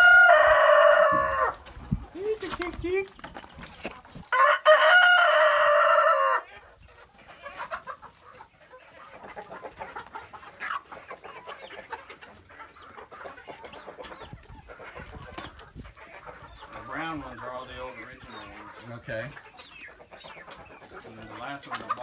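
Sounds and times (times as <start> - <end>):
rooster crowing: 0.0 - 1.6, 4.3 - 6.5
hens clucking quietly: 0.0 - 22.0.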